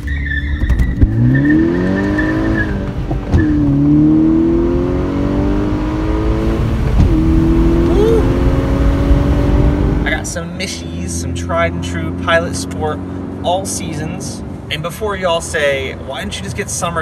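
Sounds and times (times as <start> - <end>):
tires squealing: 0.0 - 4.3
car engine accelerating: 0.0 - 15.0.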